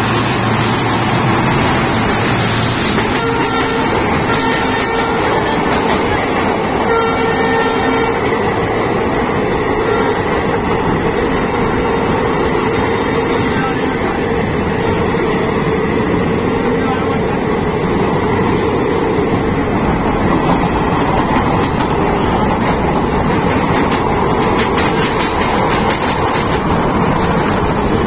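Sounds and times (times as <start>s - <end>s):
train wheels rumbling on track: 0.0s - 28.0s
wheels clicking over rail joints: 19.2s - 28.0s.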